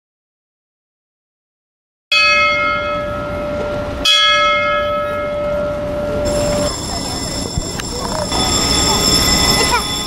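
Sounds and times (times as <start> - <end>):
bell ringing: 2.1 - 10.0.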